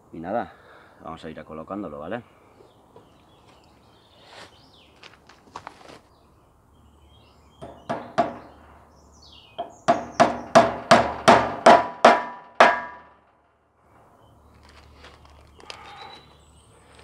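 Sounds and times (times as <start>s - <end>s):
hammer striking wood: 7.6s - 8.6s, 9.6s - 13.2s.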